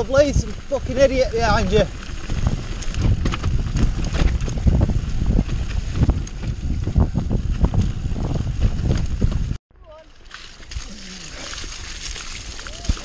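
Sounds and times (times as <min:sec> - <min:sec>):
wind buffeting microphone: 0:00.0 - 0:09.6
bike knocking and rattling: 0:00.0 - 0:10.9
low rumble of bike tyres: 0:00.0 - 0:13.0.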